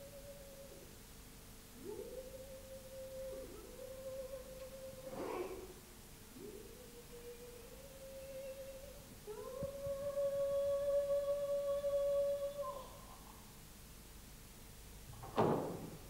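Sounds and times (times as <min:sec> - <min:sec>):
person humming: 0:01.8 - 0:05.8, 0:06.4 - 0:13.4.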